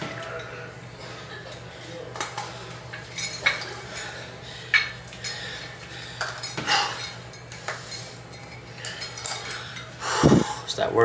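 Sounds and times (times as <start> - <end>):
metal chain clinking on weight plate: 2.2 - 9.9.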